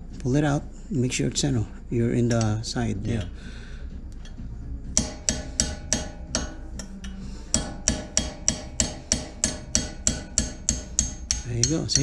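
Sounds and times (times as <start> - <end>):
hammer tapping metal punch: 5.0 - 12.0.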